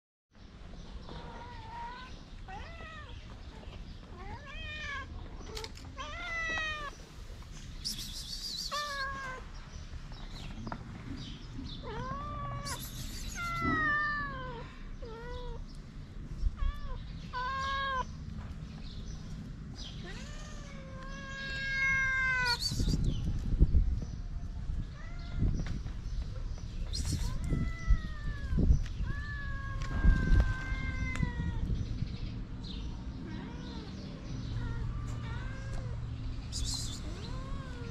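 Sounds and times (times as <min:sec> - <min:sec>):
kittens meowing: 0:08.6 - 0:09.5, 0:11.8 - 0:15.7, 0:16.5 - 0:18.1, 0:19.9 - 0:23.0, 0:27.0 - 0:32.0, 0:33.2 - 0:37.9.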